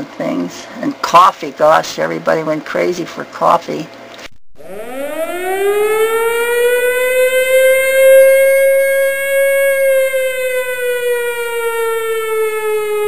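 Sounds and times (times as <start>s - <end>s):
air-raid siren wailing: 4.6s - 13.0s.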